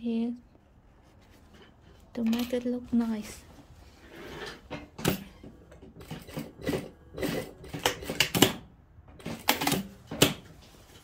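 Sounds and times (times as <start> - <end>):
sewing machine stitching: 5.8 - 8.6.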